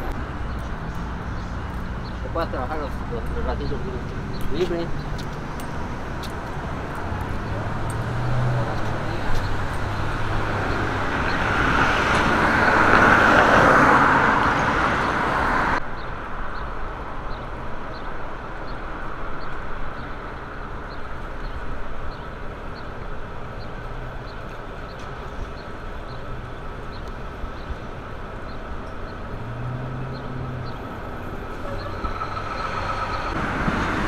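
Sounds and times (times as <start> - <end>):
vehicle passing: 0.0 - 15.8, 29.1 - 34.0
background traffic noise: 0.0 - 34.0.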